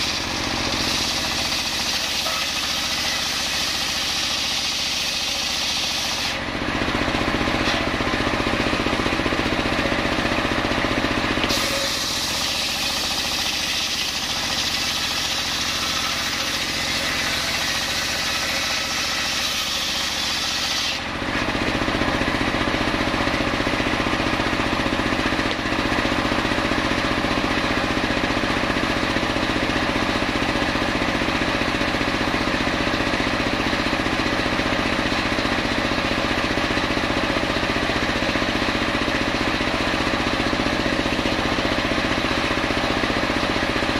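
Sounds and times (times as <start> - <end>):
saw blade cutting log: 0.0 - 10.6, 11.2 - 22.2
engine running: 0.0 - 43.9.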